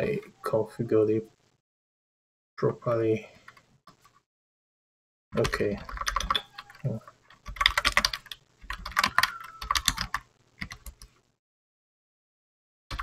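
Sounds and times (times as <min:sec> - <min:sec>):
typing on computer keyboard: 0:05.4 - 0:11.1.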